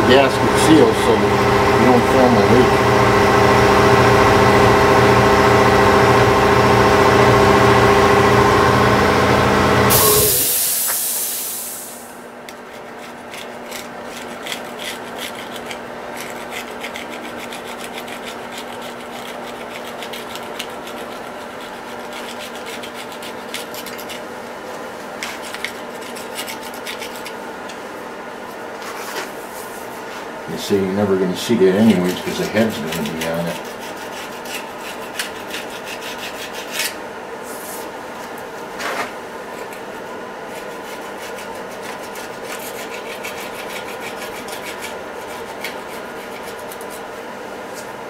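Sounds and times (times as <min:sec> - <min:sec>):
air compressor motor running: 0:00.0 - 0:12.4
blade scraping metal: 0:09.9 - 0:10.6
burst of air hiss: 0:09.9 - 0:12.2.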